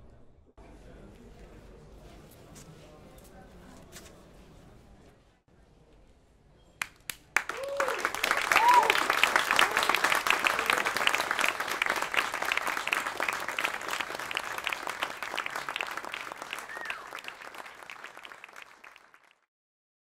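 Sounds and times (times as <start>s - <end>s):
audience applauding: 6.8s - 19.5s.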